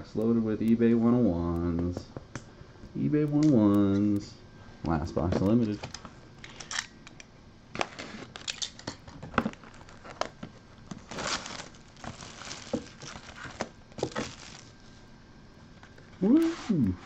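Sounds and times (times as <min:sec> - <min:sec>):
plastic wrap crinkling and tearing: 0:07.8 - 0:15.0.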